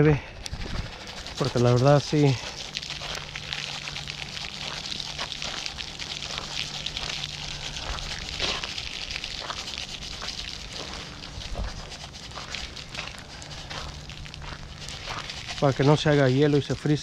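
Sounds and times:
granules pattering on concrete: 0.4s - 17.0s.

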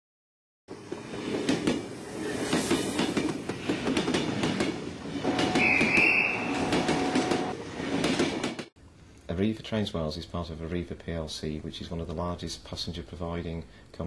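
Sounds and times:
train rumbling on rails: 0.7s - 8.7s.

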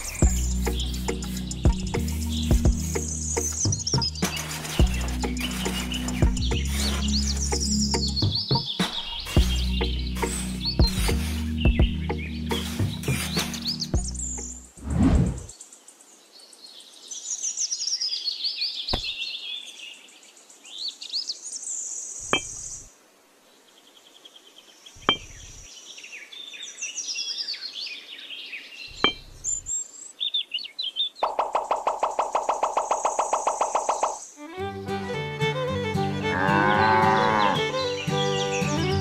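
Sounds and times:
birds chirping: 0.0s - 22.9s, 23.6s - 39.0s
music with steady beat: 0.2s - 4.2s, 6.2s - 6.6s, 10.5s - 12.2s.

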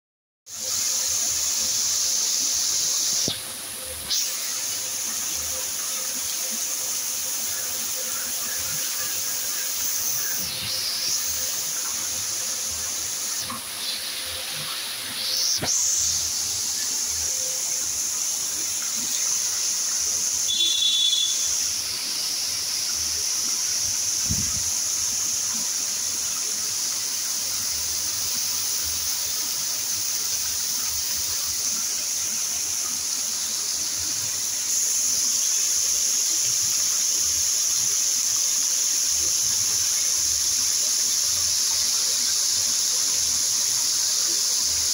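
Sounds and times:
fountain water spray hissing: 0.5s - 44.9s
high whistling tone: 20.4s - 21.6s.

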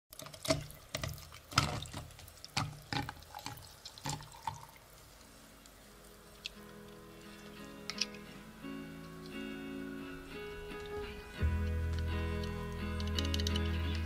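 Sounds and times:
water dripping and splashing: 0.1s - 7.7s
soft music: 4.4s - 14.0s.

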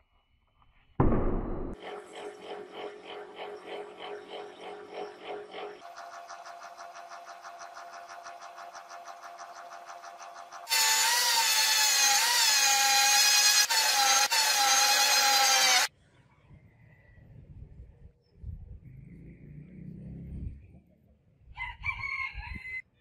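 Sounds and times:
rotary tool high-pitched whine: 1.8s - 15.9s.

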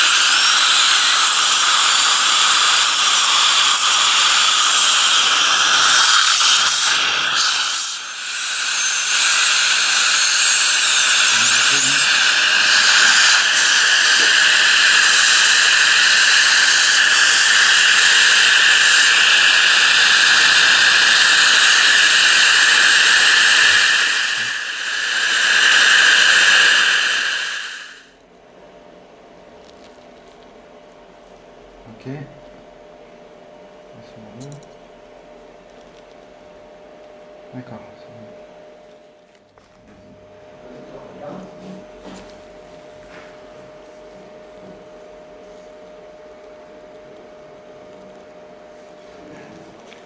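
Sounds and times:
dental drill and suction hiss: 0.0s - 28.2s.

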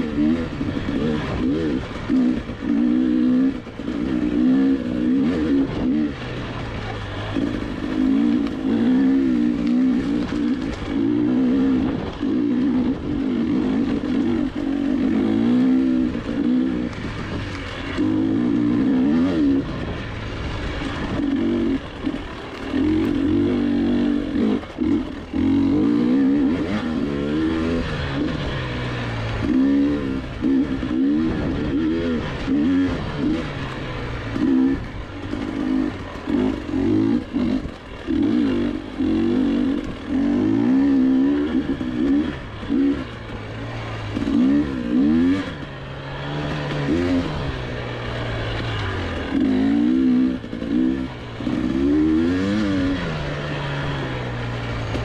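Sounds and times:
dirt bike engine revving: 0.0s - 55.0s.

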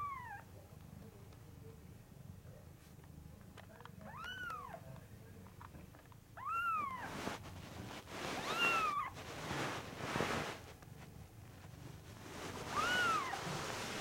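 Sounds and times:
kitten mewing: 6.4s - 7.2s, 8.4s - 9.1s, 12.7s - 13.5s.

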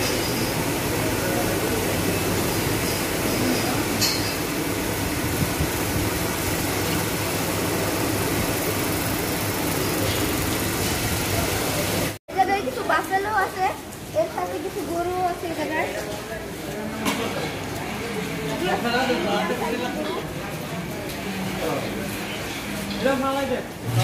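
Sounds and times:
ventilation fans running: 0.0s - 24.0s.

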